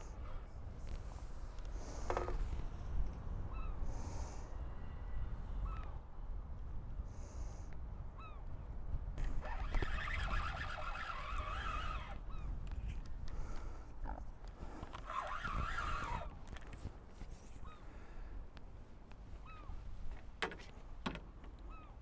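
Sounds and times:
wind on microphone: 0.0s - 17.8s
birds calling: 21.5s - 22.0s.

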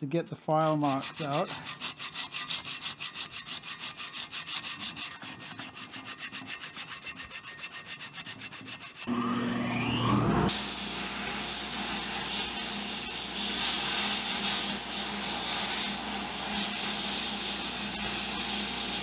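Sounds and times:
sandpaper scratching metal: 0.6s - 9.1s, 11.8s - 19.0s
hum with rising whine: 9.1s - 19.0s.

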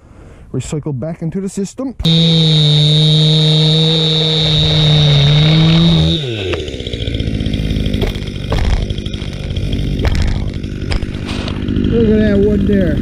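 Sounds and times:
chainsaw running and idling: 2.0s - 13.0s
wood knocks: 7.9s - 11.3s.

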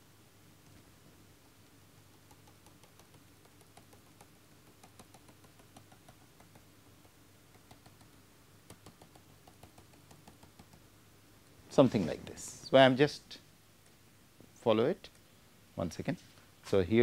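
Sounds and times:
low steady hum: 0.0s - 17.0s
stylus tapping on drawing tablet: 2.0s - 10.9s.

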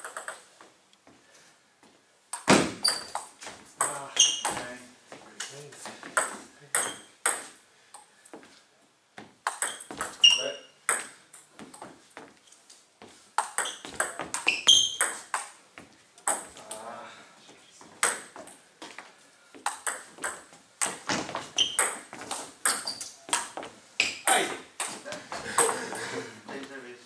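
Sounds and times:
ball clicking off bats: 9.4s - 10.2s, 13.4s - 15.6s
ball bouncing on table: 9.5s - 11.8s, 13.4s - 15.5s, 19.6s - 25.1s.

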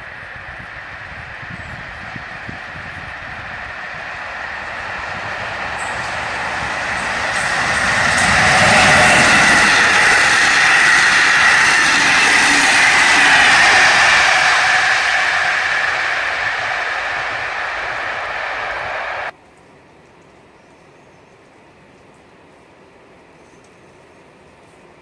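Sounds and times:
train wheels on rails: 0.0s - 19.4s.

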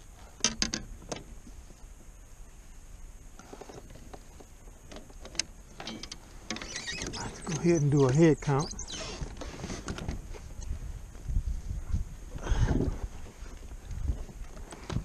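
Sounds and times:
fishing gear knocking and rattling: 4.9s - 8.2s.

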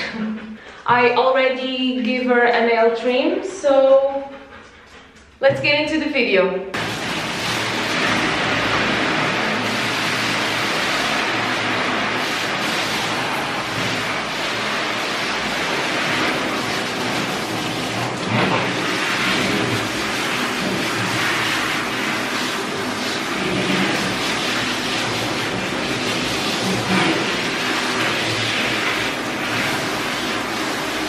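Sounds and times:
water spraying from hose nozzle: 6.8s - 31.0s.

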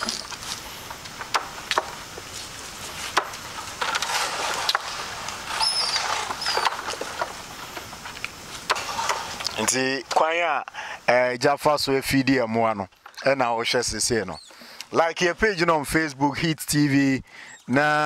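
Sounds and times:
machete chopping wood: 1.2s - 2.0s, 3.0s - 4.9s, 8.6s - 9.4s.

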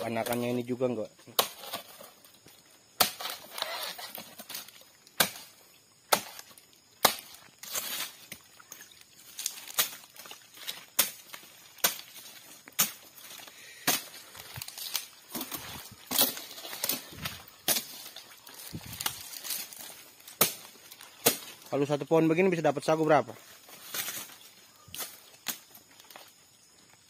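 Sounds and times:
machete chopping palm fronds: 1.3s - 2.2s, 2.9s - 8.4s, 9.4s - 21.7s, 23.7s - 24.4s, 25.0s - 26.1s.

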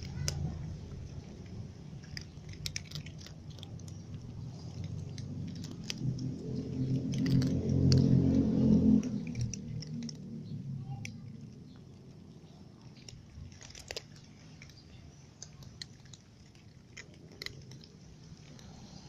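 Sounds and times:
low rumble: 0.0s - 13.6s
cats crunching dry kibble: 0.0s - 19.0s.

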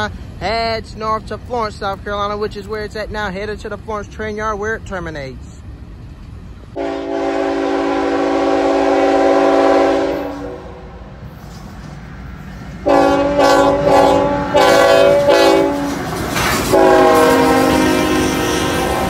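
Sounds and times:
locomotive air horn blasts: 6.8s - 11.0s, 12.8s - 16.0s, 16.7s - 19.0s.

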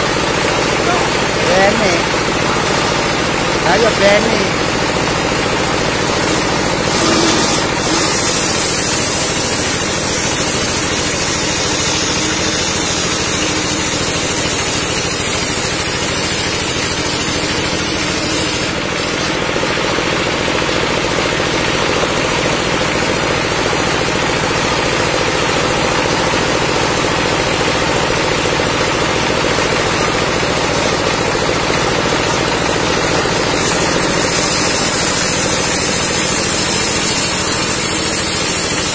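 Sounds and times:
table saw motor running: 0.0s - 38.9s
saw blade cutting timber: 0.6s - 19.6s, 29.8s - 38.9s.

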